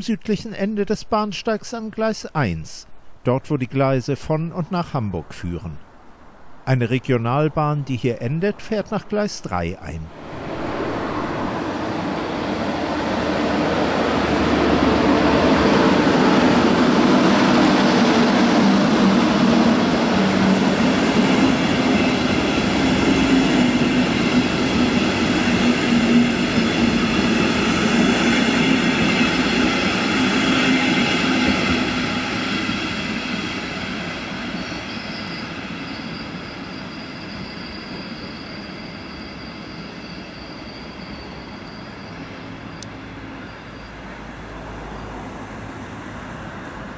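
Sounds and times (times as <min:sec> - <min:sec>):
train rumbling into station: 0:04.0 - 0:46.9
high squealing from train wheels: 0:10.2 - 0:46.9.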